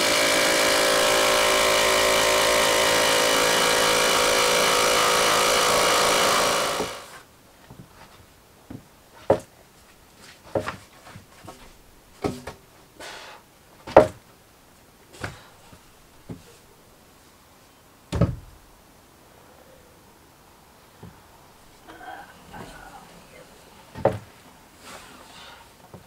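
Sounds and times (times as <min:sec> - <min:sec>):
engine running: 0:00.0 - 0:07.2
wooden knocks and clunks: 0:07.6 - 0:09.5, 0:10.4 - 0:12.6, 0:13.8 - 0:14.2, 0:18.1 - 0:18.6, 0:21.0 - 0:21.2, 0:23.9 - 0:24.4.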